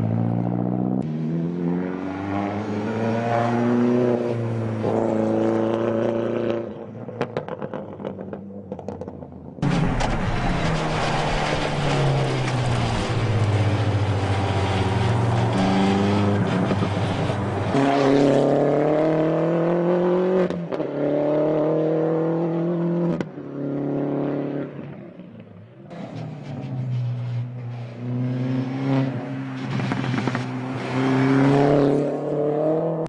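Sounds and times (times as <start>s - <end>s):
race car engine revving hard: 10.7s - 23.1s.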